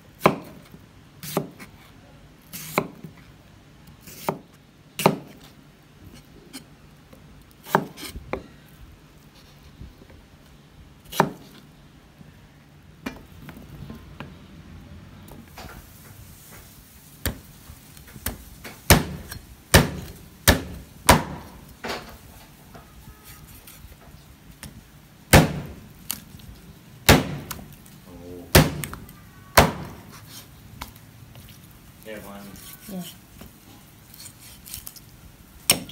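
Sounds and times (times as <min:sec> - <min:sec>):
knife chopping meat on wooden board: 0:18.2 - 0:21.5, 0:25.3 - 0:26.2, 0:27.0 - 0:27.6, 0:28.5 - 0:29.0, 0:29.6 - 0:30.1.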